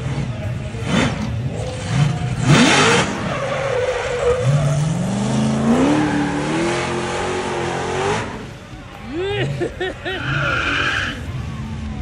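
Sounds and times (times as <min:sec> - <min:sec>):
car engine revving hard: 0:00.8 - 0:08.4.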